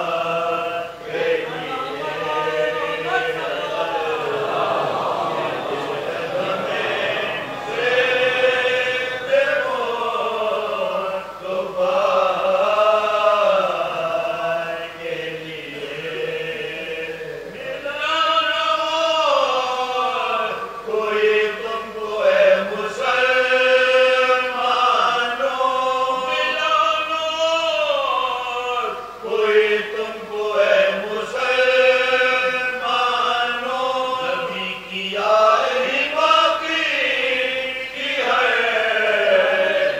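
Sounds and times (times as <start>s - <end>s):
men chanting together: 0.0s - 26.7s, 29.3s - 39.9s.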